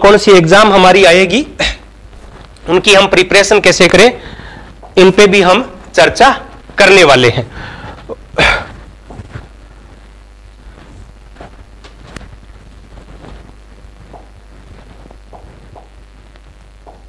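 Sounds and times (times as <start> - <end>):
low hum: 7.4 - 17.0.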